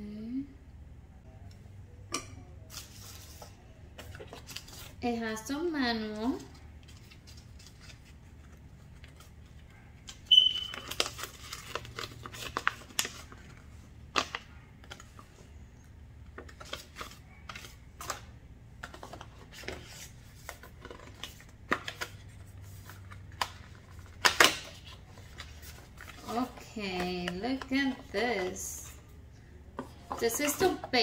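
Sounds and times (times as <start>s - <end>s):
paper rustling and crackling: 2.7s - 5.0s, 6.2s - 15.3s, 16.4s - 18.2s, 18.8s - 28.1s.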